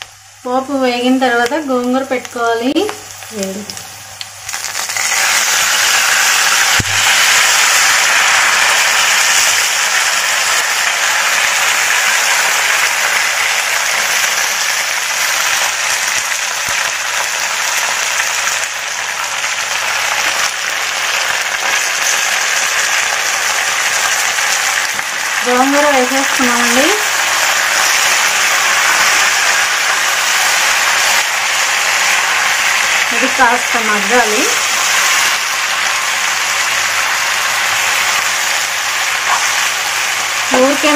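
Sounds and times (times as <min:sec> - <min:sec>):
leaves sizzling in hot oil: 0:00.0 - 0:40.9.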